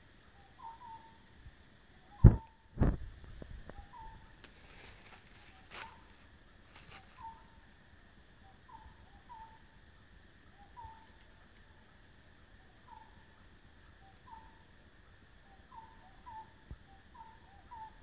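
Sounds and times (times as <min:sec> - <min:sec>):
bird calling: 0:00.0 - 0:01.2, 0:03.7 - 0:06.2, 0:06.8 - 0:07.6, 0:12.8 - 0:13.3, 0:14.0 - 0:14.6, 0:15.5 - 0:18.0.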